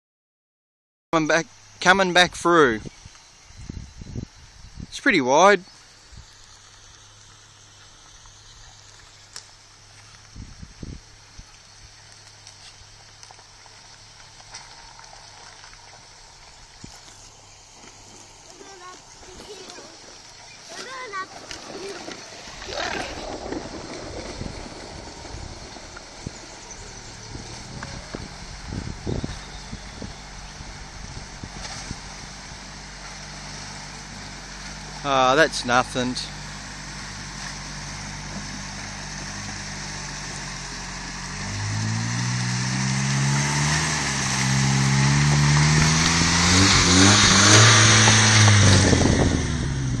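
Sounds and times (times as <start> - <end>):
wind noise on microphone: 2.3 - 5.0, 10.2 - 12.0, 22.3 - 32.6, 43.5 - 50.0
tyre noise rushing past: 5.6 - 35.0, 35.8 - 50.0
truck engine low rumble: 5.6 - 50.0.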